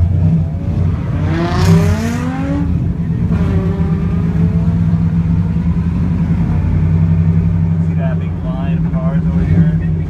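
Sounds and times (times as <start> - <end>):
car engine revving: 0.0 - 10.0.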